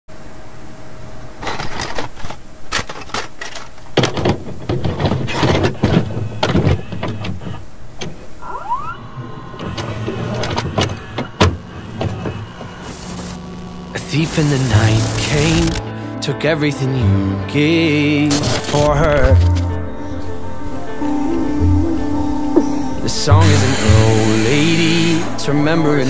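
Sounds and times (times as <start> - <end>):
mechanical clicks and clunks: 1.4 - 8.3, 9.5 - 13.4, 14.0 - 15.8, 18.3 - 19.8
rising whine: 8.3 - 15.9, 19.0 - 25.9
small motor whirring: 8.4 - 15.8.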